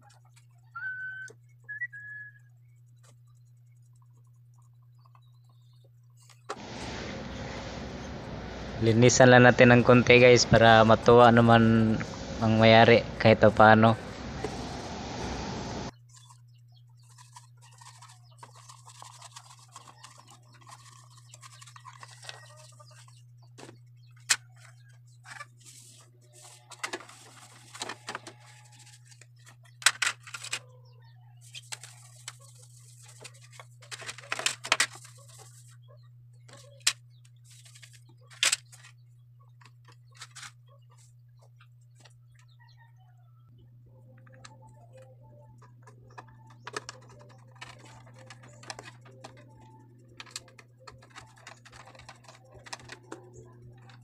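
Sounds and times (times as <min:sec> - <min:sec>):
steady low hum: 0:00.0 - 0:54.0
plastic fan blades clicking: 0:44.2 - 0:54.0.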